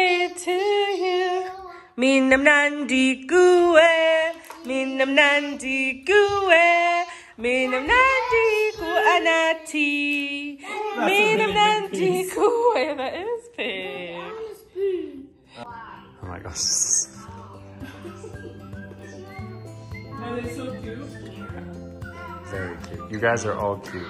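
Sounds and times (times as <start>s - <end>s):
child singing: 0.0s - 2.3s, 3.5s - 12.6s
woman singing: 0.0s - 14.3s, 20.1s - 22.4s.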